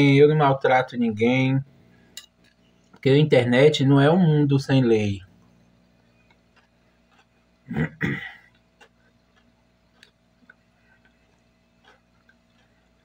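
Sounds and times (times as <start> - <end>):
quiet chewing: 2.0 - 3.0, 5.4 - 13.0
man making throat noises: 7.6 - 9.2.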